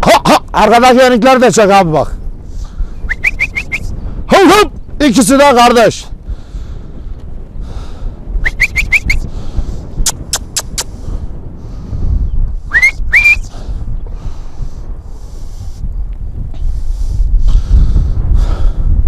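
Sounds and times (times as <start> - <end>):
person whistling: 3.1 - 3.9, 8.4 - 9.3, 12.7 - 13.5
tongue clicks: 10.0 - 11.0.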